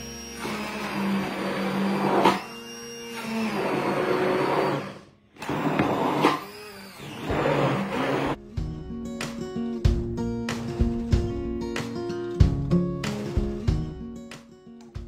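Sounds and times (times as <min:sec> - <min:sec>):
stick blender whirring: 0:00.0 - 0:08.4.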